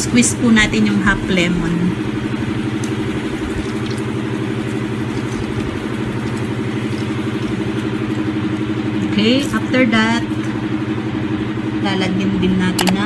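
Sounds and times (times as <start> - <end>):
motor droning steadily: 0.0 - 13.0.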